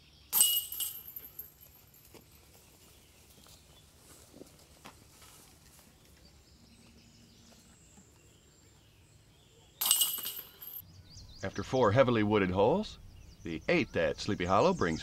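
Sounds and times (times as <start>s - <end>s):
outdoor background hush: 0.0s - 15.0s
metallic chain jangle: 0.4s - 2.2s, 9.8s - 10.8s.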